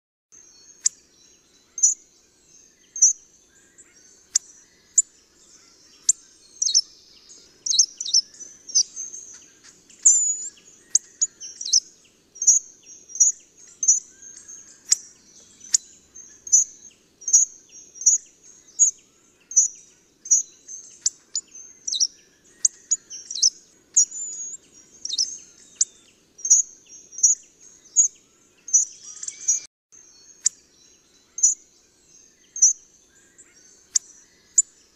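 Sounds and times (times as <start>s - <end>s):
bird calling high-pitched: 3.8s - 18.2s, 18.8s - 29.7s.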